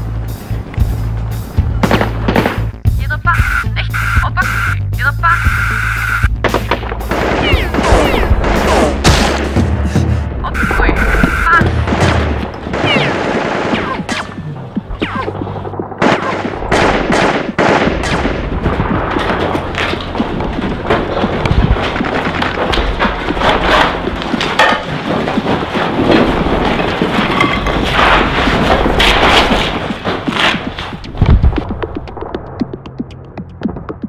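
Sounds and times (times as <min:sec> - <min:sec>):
gunshots: 0:01.8 - 0:04.7, 0:05.5 - 0:32.3
heavy bang: 0:06.4 - 0:13.4, 0:16.0 - 0:32.3.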